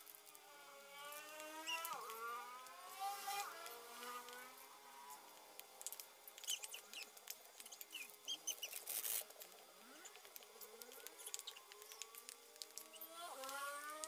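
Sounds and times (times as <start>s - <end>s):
rustle: 0.0s - 14.0s
birds chirping: 1.4s - 2.2s, 6.3s - 9.2s, 9.8s - 13.6s
hands squishing dough: 5.8s - 13.5s.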